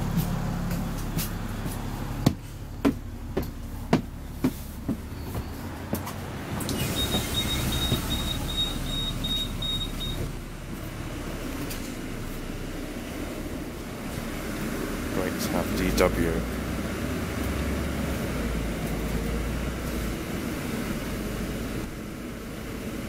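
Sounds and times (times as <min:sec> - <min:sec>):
footsteps on stairs: 0:00.0 - 0:07.3
bus rumbling: 0:00.0 - 0:23.0.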